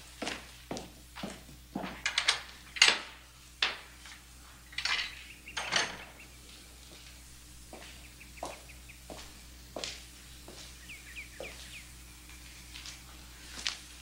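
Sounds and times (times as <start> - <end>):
heavy footsteps on wooden boards: 0.0 - 2.1, 6.9 - 11.9.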